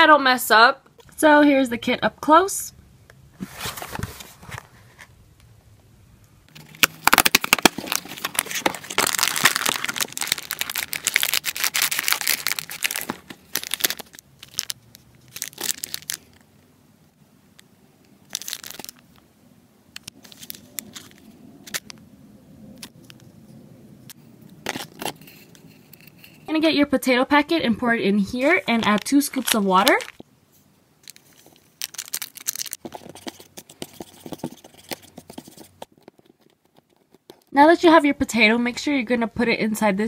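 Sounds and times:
packaging crinkling and rustling: 0:06.5 - 0:16.5, 0:18.3 - 0:19.2, 0:20.0 - 0:22.0, 0:24.6 - 0:25.6, 0:28.4 - 0:30.3, 0:31.0 - 0:37.5.

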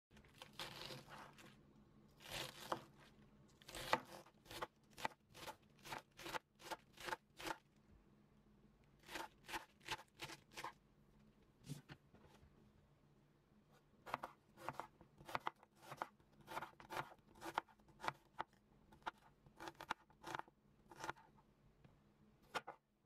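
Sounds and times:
knife slicing lettuce: 0:00.2 - 0:01.6, 0:02.2 - 0:07.6, 0:09.0 - 0:10.8.

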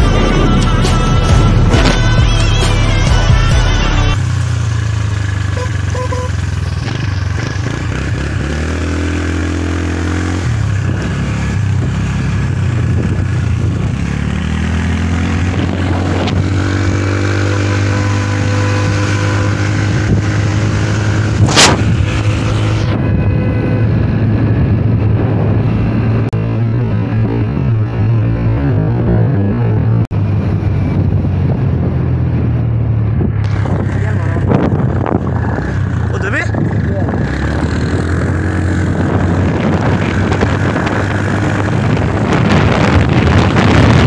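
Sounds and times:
motorbike engine running: 0:03.6 - 0:29.0
wind noise on microphone: 0:09.8 - 0:44.0
sharp crack: 0:21.4 - 0:22.0.

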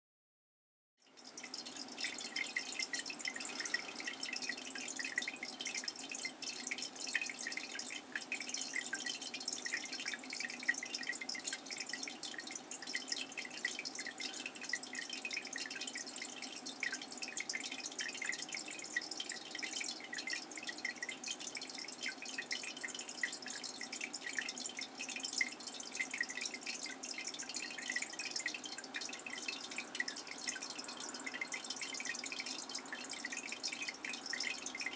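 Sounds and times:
faint steady hum: 0:01.0 - 0:34.9
water dripping and trickling: 0:01.0 - 0:34.9.

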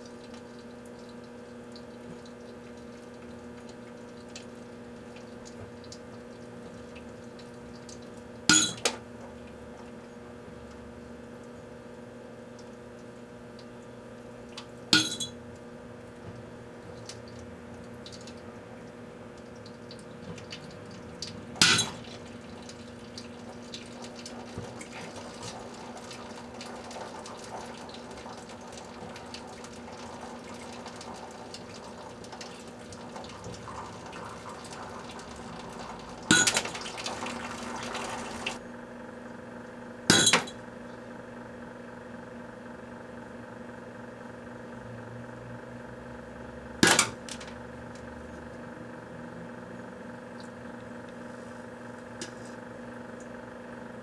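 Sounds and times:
microwave oven humming: 0:00.0 - 0:54.0.

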